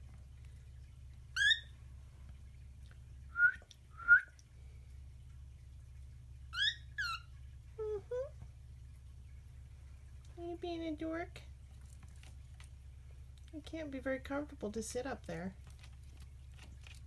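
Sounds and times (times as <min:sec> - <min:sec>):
cockatiel whistled chirps: 0:01.4 - 0:01.7, 0:03.3 - 0:04.3, 0:06.6 - 0:07.3.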